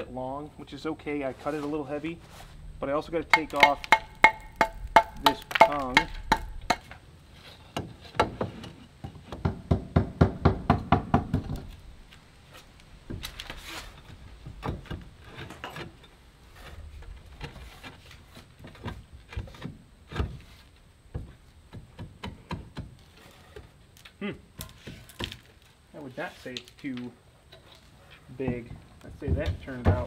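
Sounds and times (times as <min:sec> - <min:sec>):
sharp tapping on stone siding panel: 0:03.2 - 0:07.0, 0:07.7 - 0:11.8, 0:21.1 - 0:23.7.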